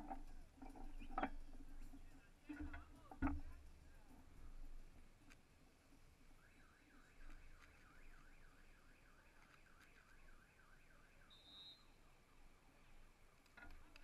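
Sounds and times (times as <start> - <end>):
short high beep: 11.3 - 11.9.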